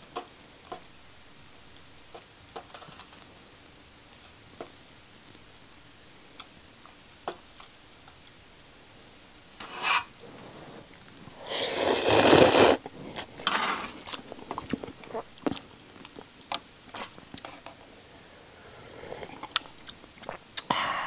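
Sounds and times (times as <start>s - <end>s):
spork scraping metal pot: 9.6s - 10.1s
rough rushing mouth noise: 10.6s - 13.3s
chewing: 12.8s - 17.6s, 19.1s - 20.4s.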